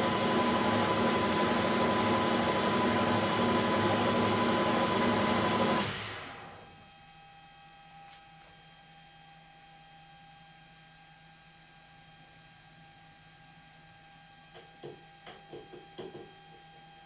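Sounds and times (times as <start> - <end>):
lathe running with high whine: 0.0 - 6.7.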